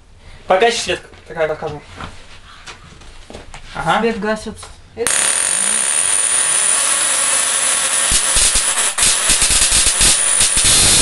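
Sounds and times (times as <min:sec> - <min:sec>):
sharp spark cracks: 0:08.1 - 0:11.0
tesla coil buzzing hiss: 0:08.1 - 0:11.0.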